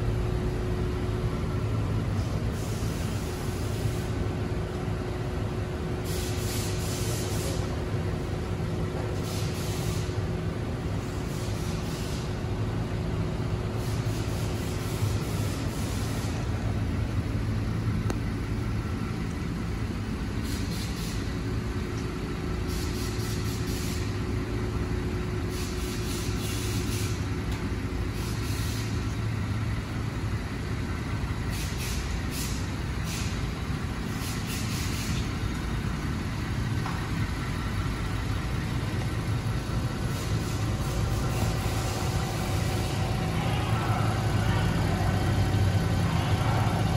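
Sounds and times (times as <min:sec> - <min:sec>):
van engine humming: 0:00.0 - 0:46.9
short bursts of hiss: 0:02.2 - 0:04.2, 0:06.0 - 0:07.7, 0:09.2 - 0:10.2, 0:11.0 - 0:12.3, 0:13.8 - 0:16.4, 0:20.4 - 0:21.3, 0:22.7 - 0:24.1, 0:25.5 - 0:27.3, 0:28.1 - 0:29.0, 0:31.5 - 0:33.4, 0:34.1 - 0:35.3, 0:40.0 - 0:43.2.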